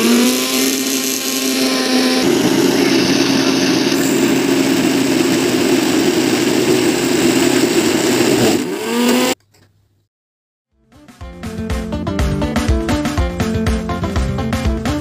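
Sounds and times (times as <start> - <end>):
mixer grinder running: 0.0 - 9.4.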